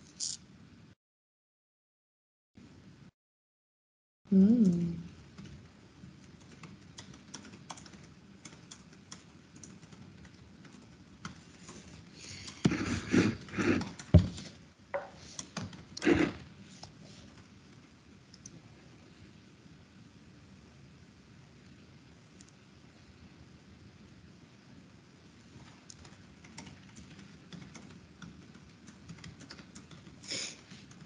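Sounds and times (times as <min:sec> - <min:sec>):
keyboard typing: 0:06.2 - 0:12.6, 0:25.9 - 0:31.0.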